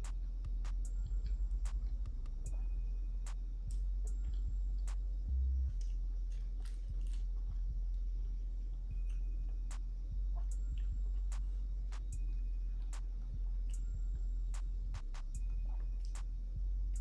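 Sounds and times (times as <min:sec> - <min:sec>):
steady low hum: 0:00.0 - 0:17.0
woman chewing food: 0:05.6 - 0:14.6.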